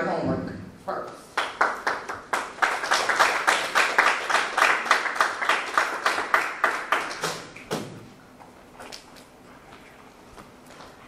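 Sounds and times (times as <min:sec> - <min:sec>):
audience applause: 0:01.4 - 0:07.4.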